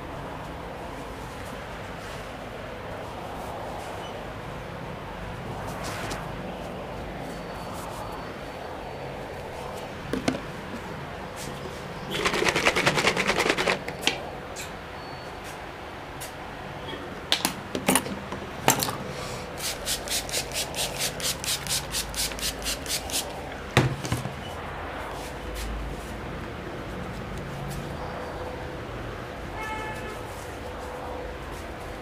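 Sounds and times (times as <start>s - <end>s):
skin rubbing strokes: 19.6s - 23.4s.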